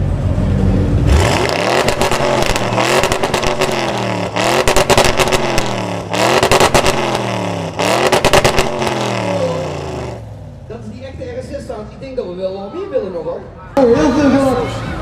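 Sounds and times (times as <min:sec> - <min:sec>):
car exhaust revving: 0:00.0 - 0:10.8.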